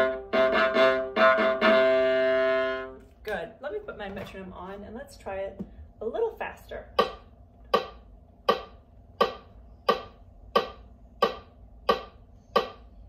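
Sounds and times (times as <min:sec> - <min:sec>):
metronome clicking: 0:07.0 - 0:12.9.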